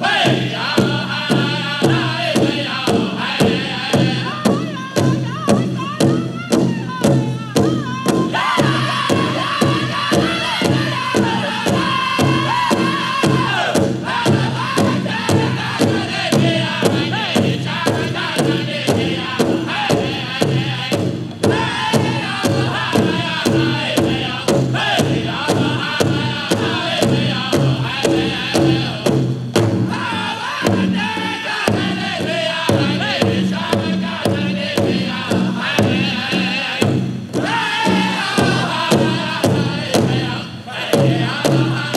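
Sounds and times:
big drum beat: 0.0s - 41.9s
chorus of voices chanting: 0.0s - 41.9s.

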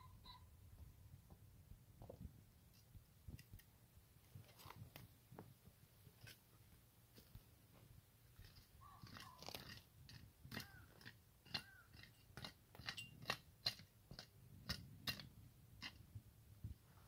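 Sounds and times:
footsteps crunching on stony ground: 4.3s - 9.8s.

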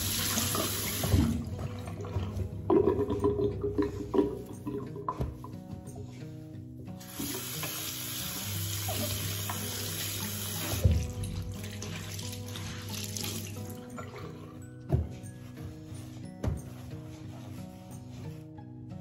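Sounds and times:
tap water running into basin: 0.0s - 5.2s, 7.0s - 14.4s
soft background music: 0.0s - 19.0s
cloth being wrung: 11.5s - 14.6s, 15.4s - 18.5s.

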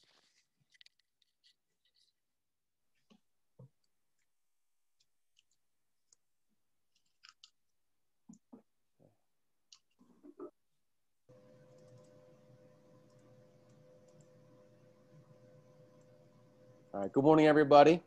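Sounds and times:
faint clicks and taps: 11.3s - 16.4s
steady hum with held tone: 11.3s - 18.0s.

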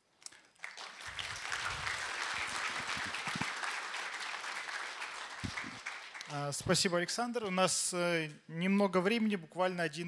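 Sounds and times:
audience applauding: 0.6s - 6.6s.

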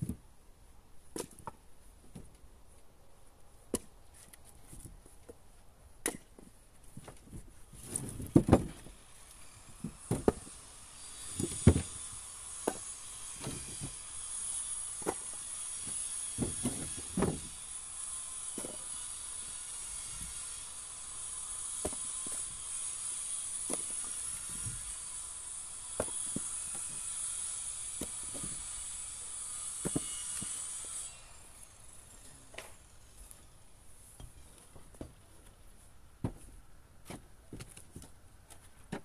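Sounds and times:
wooden logs knocking: 6.0s - 8.9s, 9.8s - 10.5s, 15.0s - 17.5s, 36.2s - 39.0s.

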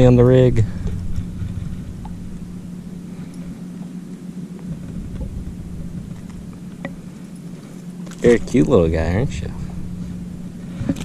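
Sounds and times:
steady low hum: 0.0s - 11.0s
faint ticks: 0.8s - 2.2s, 3.2s - 8.2s.

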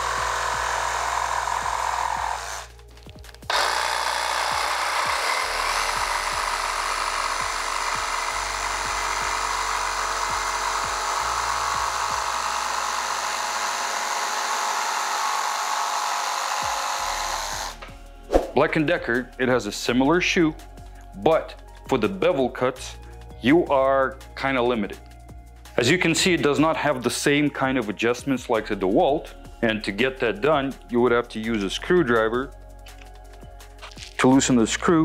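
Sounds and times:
jigsaw cutting wood: 0.0s - 2.8s, 3.4s - 17.8s.

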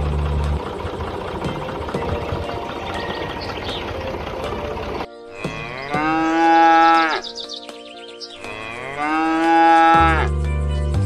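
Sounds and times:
loud low hum: 0.0s - 5.1s
faint background music: 0.0s - 11.0s
cow mooing: 5.3s - 7.4s, 8.4s - 10.3s.

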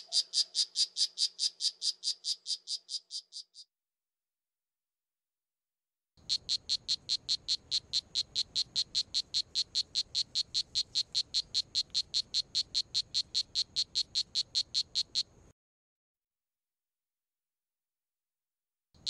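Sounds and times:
frog calling in high chirps: 0.0s - 3.7s, 6.2s - 15.4s.

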